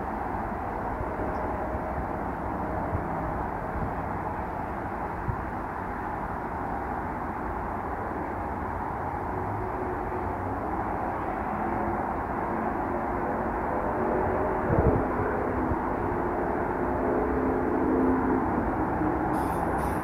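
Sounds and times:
low engine-like rumble: 0.0s - 20.0s.

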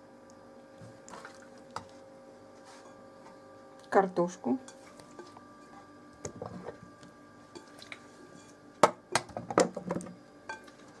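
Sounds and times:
soft wet handling sounds: 0.8s - 3.0s, 4.7s - 8.6s.

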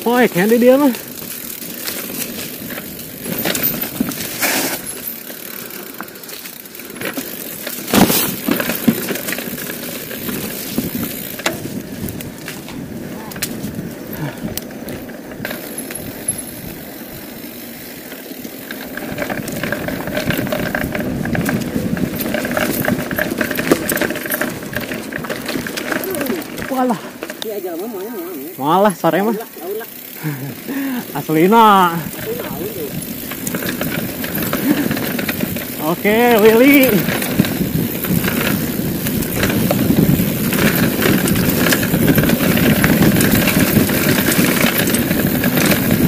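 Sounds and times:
bike rattling: 0.0s - 46.0s
bike tyres rolling over dirt: 0.0s - 46.0s
sharp knocks over bumps: 7.1s - 9.4s.

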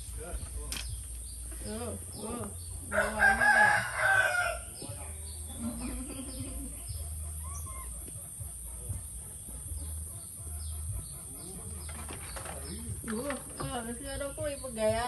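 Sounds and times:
rooster crowing: 2.9s - 5.0s.

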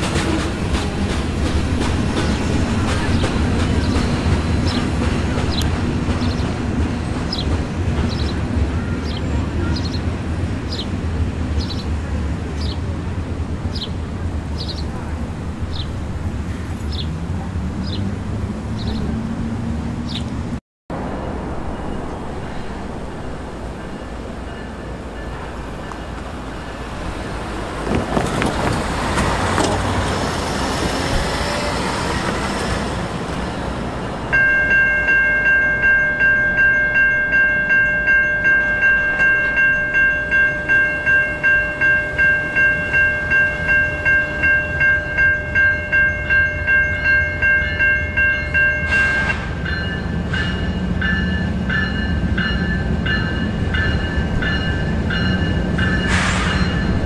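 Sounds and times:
bell ringing: 34.3s - 57.0s
locomotive horn blast: 48.8s - 49.6s.

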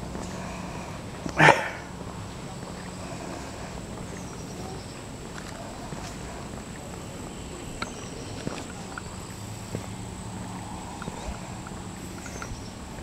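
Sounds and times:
footsteps on asphalt: 0.0s - 13.0s
steady background hum: 0.0s - 13.0s.

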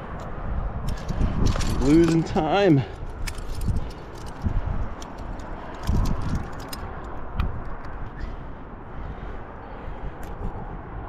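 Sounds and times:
steady rushing noise: 0.0s - 11.0s
climbing gear clinking: 0.1s - 8.3s.

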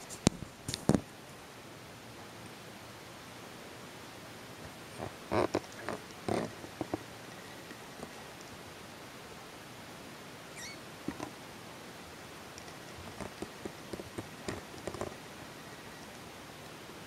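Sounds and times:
soft taps and rustles: 0.0s - 1.1s, 4.6s - 8.6s, 11.0s - 11.4s, 12.5s - 15.2s
faint hiss: 0.0s - 17.0s
kitten squeaking: 10.5s - 10.9s.

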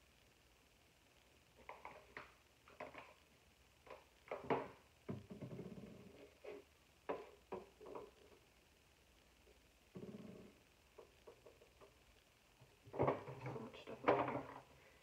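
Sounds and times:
small containers clicking and knocking: 1.6s - 3.2s.

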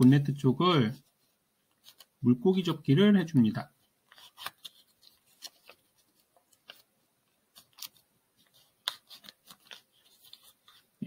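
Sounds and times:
paper crackling while folded: 1.7s - 2.2s, 4.1s - 6.9s, 7.5s - 11.0s.

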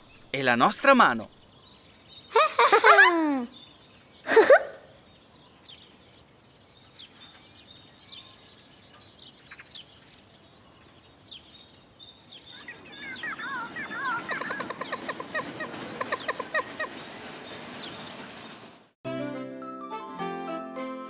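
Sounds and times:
faint birds chirping: 0.0s - 19.0s.

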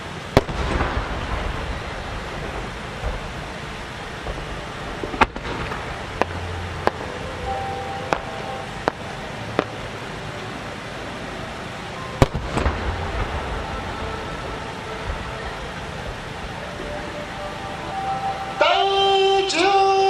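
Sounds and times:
sharp firework bangs: 0.3s - 7.0s, 12.2s - 16.4s.

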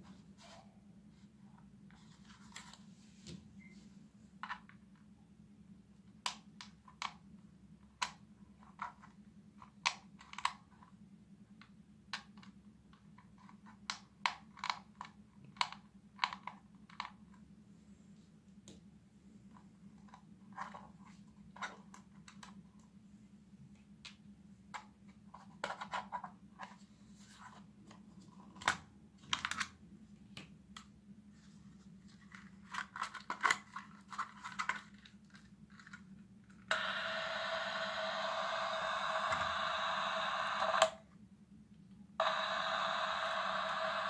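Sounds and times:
walkie-talkie static hiss with tone: 36.7s - 41.0s, 42.2s - 44.0s.

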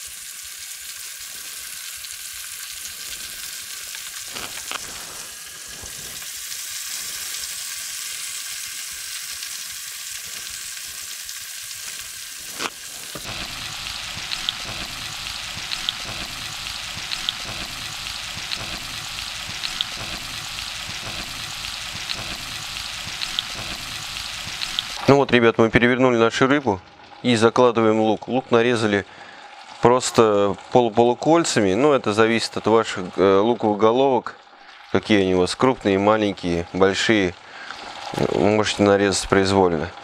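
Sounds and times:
fish sizzling in hot oil: 0.0s - 25.2s, 28.3s - 40.0s.

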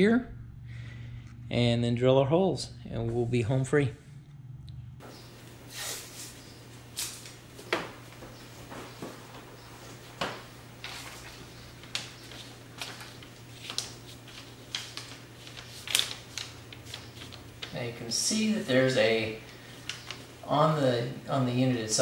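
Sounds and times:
faint low hum: 0.0s - 22.0s
paper rustling and crinkling: 5.9s - 18.0s, 18.6s - 20.4s.

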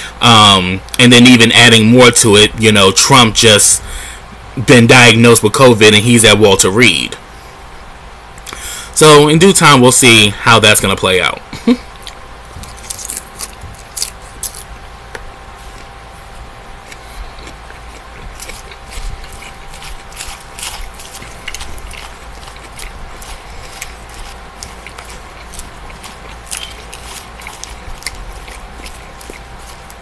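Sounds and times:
person chewing salad: 11.8s - 30.0s.

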